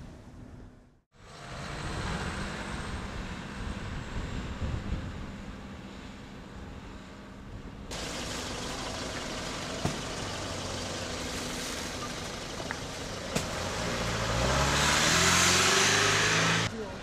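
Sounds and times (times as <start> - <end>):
vehicle engine approaching: 1.1 - 7.0, 7.9 - 17.0
sharp knocks: 9.8 - 10.1.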